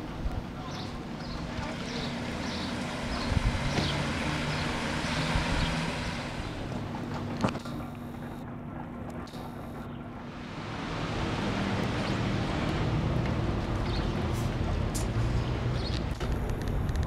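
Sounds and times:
wind buffeting microphone: 0.0 - 7.6.

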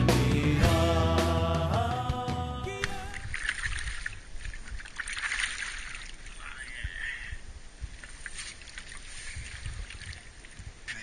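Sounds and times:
low rumbles: 0.0 - 4.4
water splashing and dripping: 2.8 - 6.4, 7.9 - 11.0.

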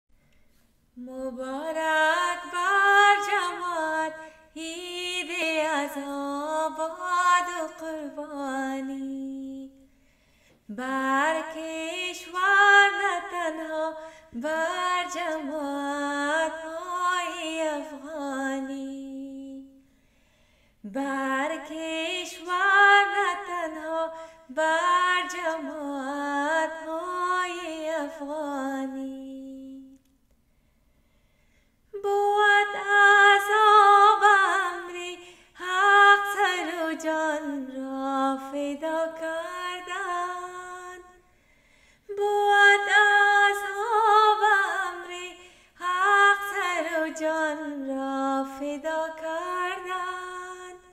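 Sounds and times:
woman singing unaccompanied: 1.0 - 9.8, 10.7 - 19.8, 20.8 - 30.0, 32.0 - 41.2, 42.1 - 50.9.

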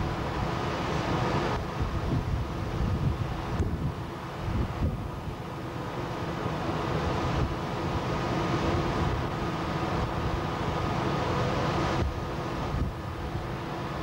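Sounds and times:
faint steady hum: 0.0 - 14.0
ship engine drone: 0.0 - 14.0
wind buffeting microphone: 1.4 - 5.4, 11.9 - 13.5.

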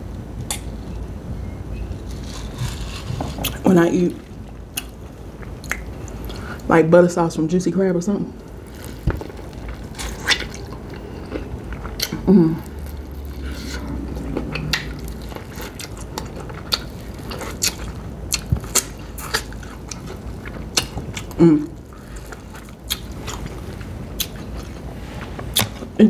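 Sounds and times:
person chewing corn on the cob: 2.1 - 3.6, 4.2 - 6.7, 8.4 - 25.9
person humming: 12.2 - 12.7.

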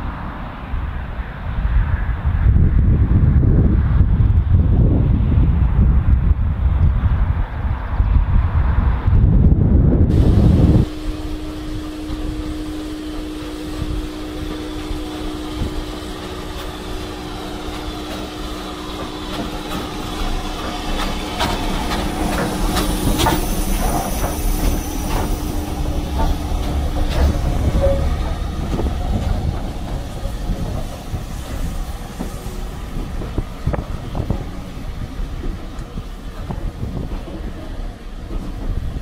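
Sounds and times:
steady low hum: 10.0 - 38.3
faint high wheel squeals: 11.4 - 28.9
wheels clicking over rail joints: 14.4 - 39.0.

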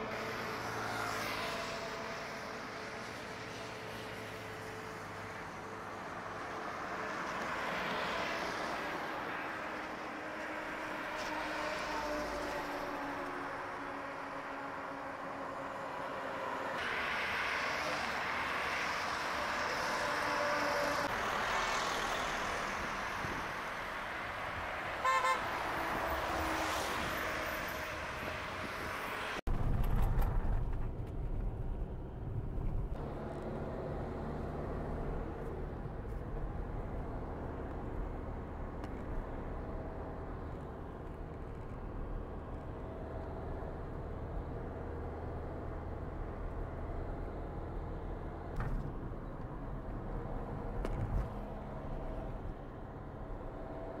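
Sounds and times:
highway traffic passing: 0.0 - 29.5, 31.7 - 54.0
vehicle horn toot: 25.0 - 25.6
road and engine rumble in car: 27.9 - 54.0.

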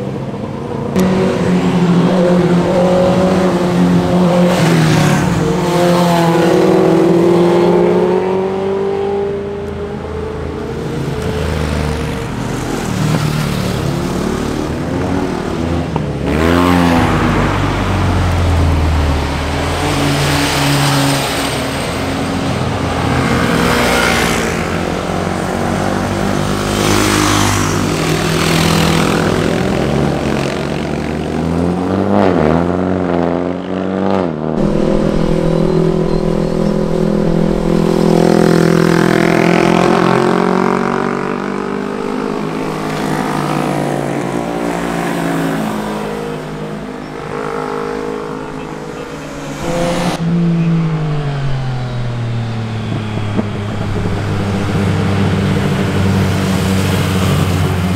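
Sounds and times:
motorcycles revving past: 34.6 - 57.9.

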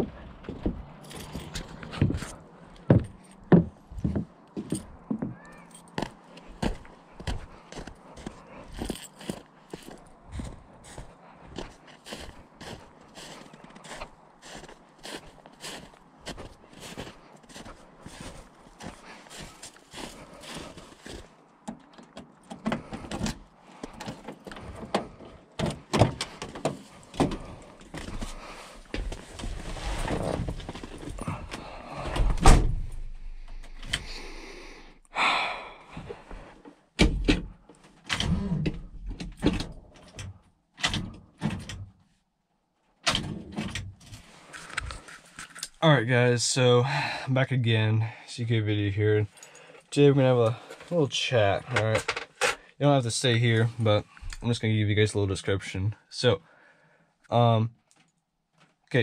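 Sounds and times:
boot footsteps on wooden boards: 0.0 - 5.4, 6.0 - 21.3
keys jangling: 1.0 - 1.9.

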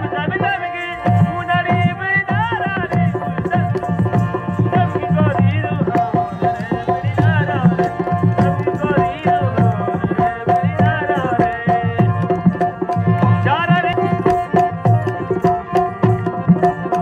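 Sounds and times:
hand drum rhythm: 0.0 - 17.0
held harmonium note: 0.0 - 17.0
person singing ornamented melody: 2.6 - 12.4.

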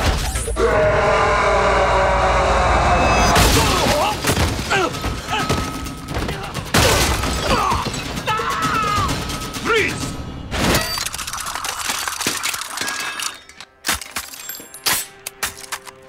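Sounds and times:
action movie music: 0.0 - 12.0
people shouting: 0.6 - 9.9
crashing impacts and thuds: 3.3 - 11.0.

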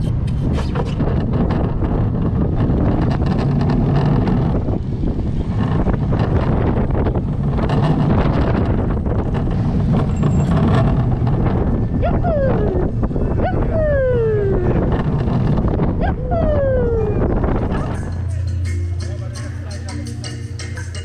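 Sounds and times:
wind on microphone: 0.0 - 18.6
roller coaster wheels rumbling: 0.0 - 19.2
riders whooping: 11.5 - 18.0.

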